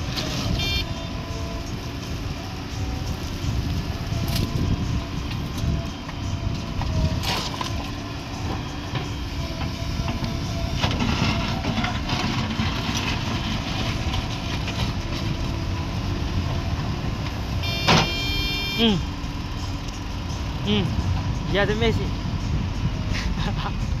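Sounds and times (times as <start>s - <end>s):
diesel engine running: 0.0s - 24.0s
high-pitched beep: 0.6s - 0.9s, 17.6s - 19.0s.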